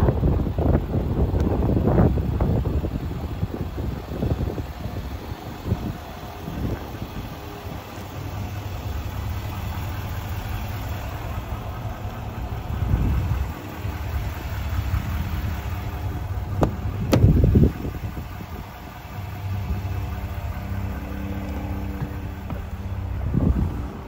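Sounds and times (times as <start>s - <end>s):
diesel engine idling: 0.0s - 24.0s
car door thump: 16.6s - 17.6s, 21.8s - 22.9s.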